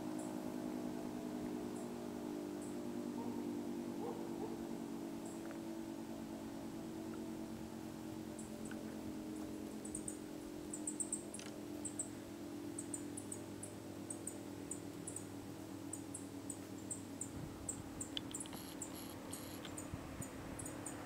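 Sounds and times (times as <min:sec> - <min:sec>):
siren low steady chord: 0:00.0 - 0:21.0
high siren chirps: 0:18.4 - 0:19.7.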